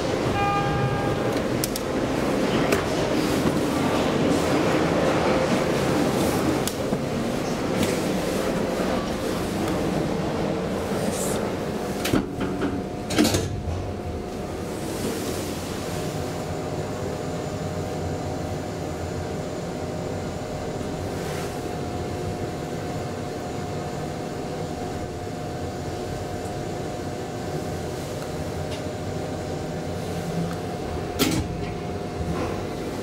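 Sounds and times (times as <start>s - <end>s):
elevator car clunk: 0.0s - 4.2s
elevator rushing hum and whine: 0.0s - 33.0s.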